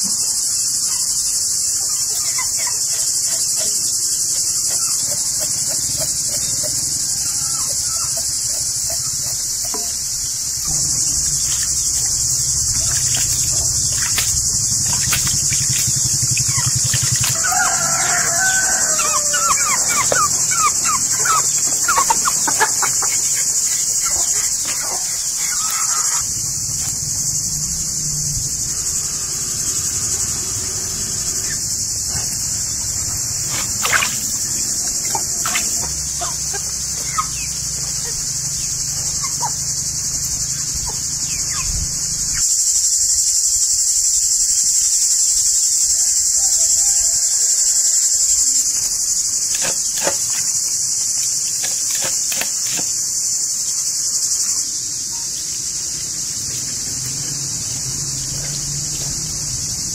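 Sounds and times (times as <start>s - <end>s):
high-pitched insect chorus: 0.0s - 59.9s
water splashing in a basin: 10.6s - 27.1s, 32.3s - 37.7s, 49.4s - 53.1s.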